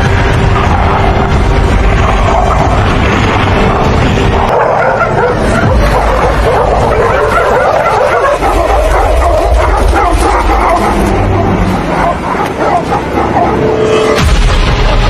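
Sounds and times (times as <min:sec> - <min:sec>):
dogs barking and yipping: 0:04.3 - 0:14.2.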